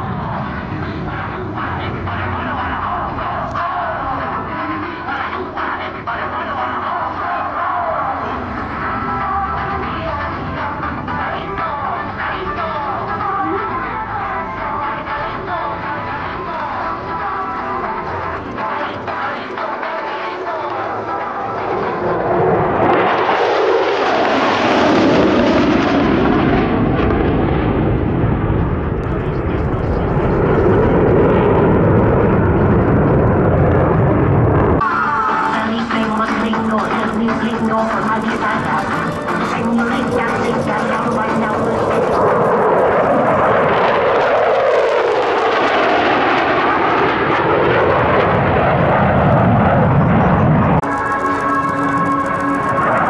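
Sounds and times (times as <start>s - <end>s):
jet fighters flying past: 0.0s - 53.0s.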